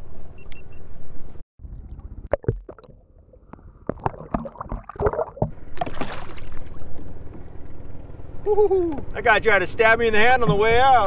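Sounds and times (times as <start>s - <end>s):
water splashing: 1.6s - 7.1s
underwater knocks: 2.3s - 6.0s.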